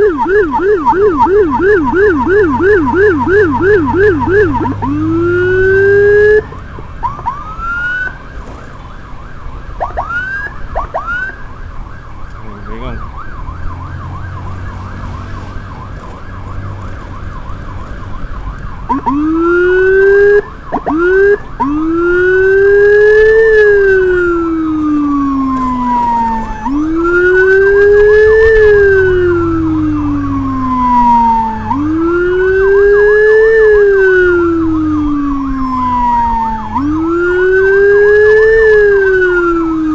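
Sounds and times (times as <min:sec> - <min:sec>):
electronic siren yelp and wail: 0:00.0 - 0:08.3, 0:09.0 - 0:39.9.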